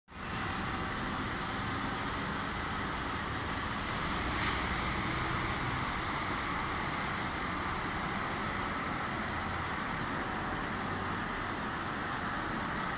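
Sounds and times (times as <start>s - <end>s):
brief hiss: 4.3s - 4.8s.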